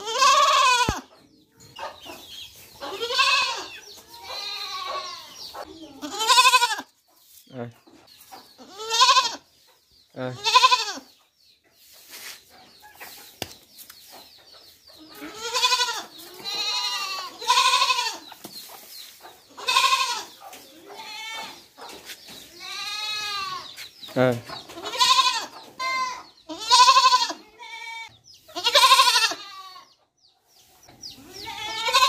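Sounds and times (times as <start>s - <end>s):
goat kid bleating: 0.0s - 1.1s, 2.8s - 5.3s, 5.9s - 6.9s, 8.6s - 9.5s, 10.3s - 11.1s, 15.1s - 18.2s, 19.5s - 21.6s, 22.5s - 23.7s, 24.8s - 29.9s, 31.2s - 32.0s.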